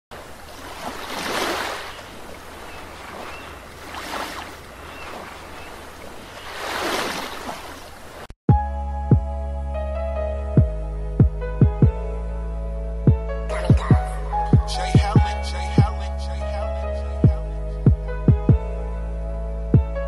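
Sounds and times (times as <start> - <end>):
ocean waves washing in: 0.1 - 8.3.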